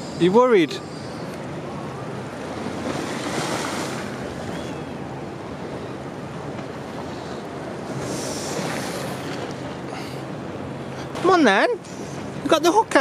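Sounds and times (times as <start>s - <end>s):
waves washing on rocky shore: 2.3s - 5.3s.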